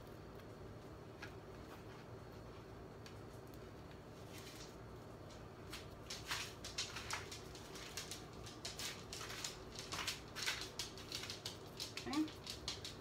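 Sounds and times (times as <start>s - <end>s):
dog claws on hardwood floor: 4.3s - 13.0s.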